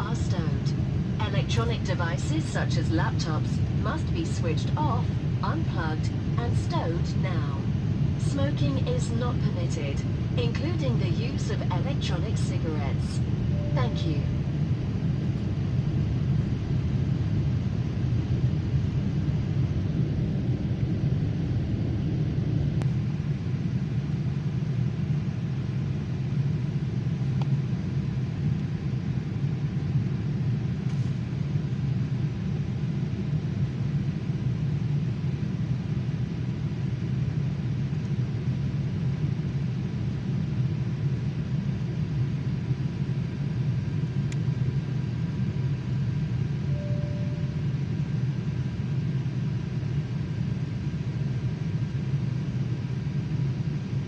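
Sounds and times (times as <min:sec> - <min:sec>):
airliner cabin rumble: 0:00.0 - 0:54.0.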